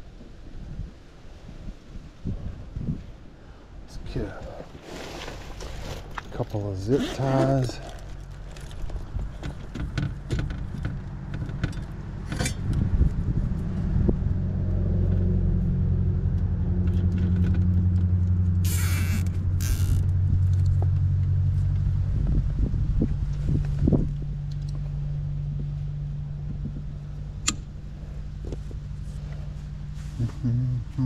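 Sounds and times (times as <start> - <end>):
low engine-like hum: 5.4 - 31.0
zip ties ratcheting: 18.6 - 20.7.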